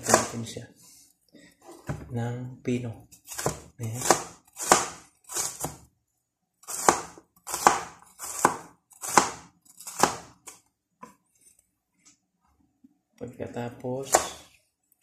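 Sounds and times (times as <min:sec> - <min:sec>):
knife chopping on cutting board: 0:00.0 - 0:00.3, 0:03.2 - 0:05.8, 0:06.7 - 0:10.4.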